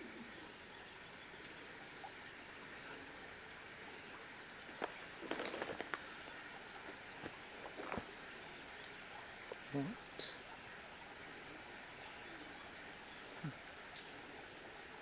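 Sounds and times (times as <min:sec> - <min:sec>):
faint steady hiss: 0:00.0 - 0:15.0
crackles and rustles: 0:04.6 - 0:09.8.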